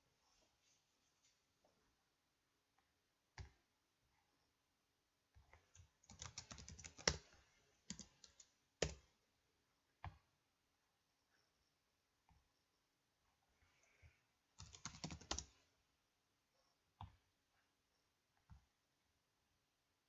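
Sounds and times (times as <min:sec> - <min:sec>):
computer keyboard typing: 0:05.6 - 0:09.0, 0:14.6 - 0:15.6.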